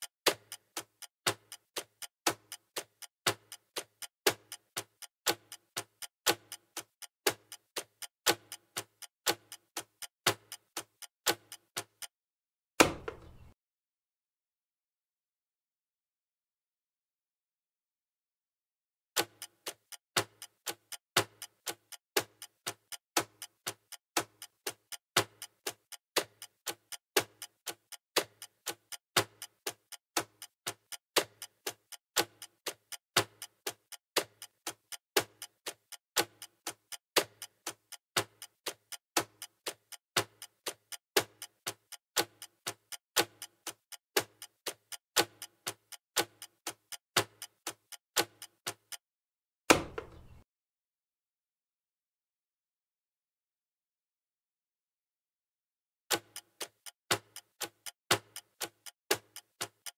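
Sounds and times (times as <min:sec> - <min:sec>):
clock ticking: 0:00.0 - 0:12.1, 0:19.2 - 0:49.0, 0:56.1 - 0:59.9.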